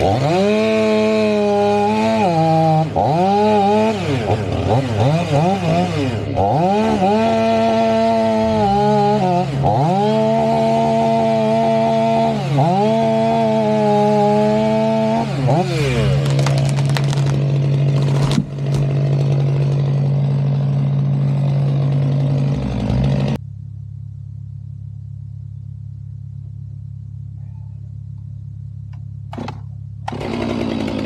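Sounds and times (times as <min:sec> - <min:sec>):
chainsaw cutting tree trunk: 0:00.0 - 0:23.4, 0:29.3 - 0:31.0
tree cracking and crashing down: 0:15.5 - 0:20.2.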